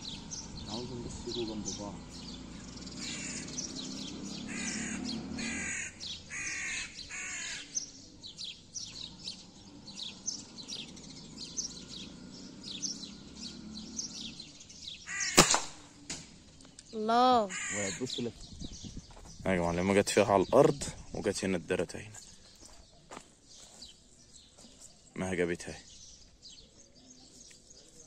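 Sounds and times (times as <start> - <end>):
small birds chirping: 0.0 - 28.0
crows cawing: 3.0 - 7.8, 15.0 - 15.6, 17.4 - 18.2
sharp gunshot: 15.2 - 15.9.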